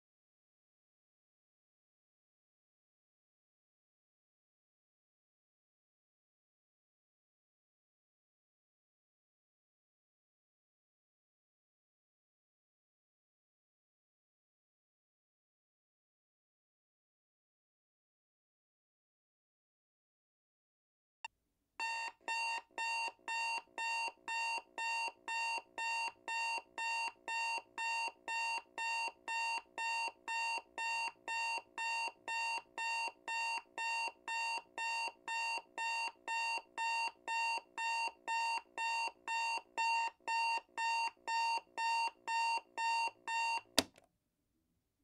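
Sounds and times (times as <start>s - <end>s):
timer alarm beeping: 21.8s - 43.7s.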